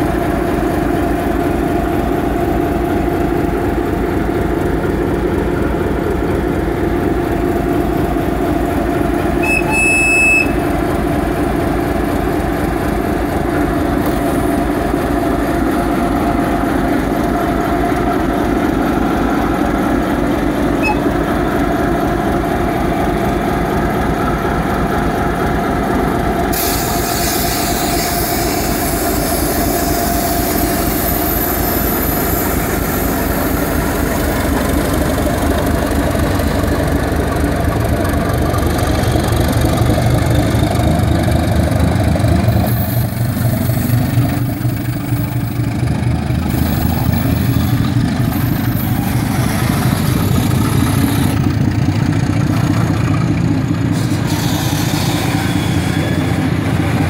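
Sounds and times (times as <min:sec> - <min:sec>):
diesel locomotive engine idling: 0:00.0 - 0:57.0
short high whistle: 0:09.4 - 0:10.6, 0:20.8 - 0:21.0
hiss: 0:26.5 - 0:33.9, 0:53.9 - 0:55.9.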